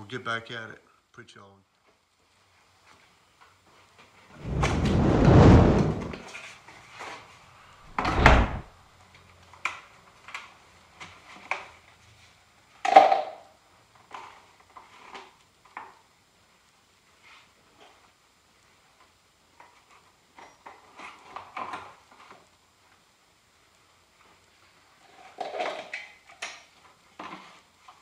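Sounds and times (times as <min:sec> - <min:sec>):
rustling scrape: 0:04.4 - 0:06.2, 0:07.9 - 0:08.7
thud: 0:07.9 - 0:08.7.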